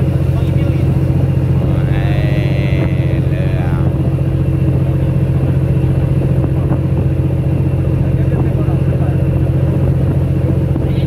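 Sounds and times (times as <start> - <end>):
motor boat engine humming: 0.0 - 11.0.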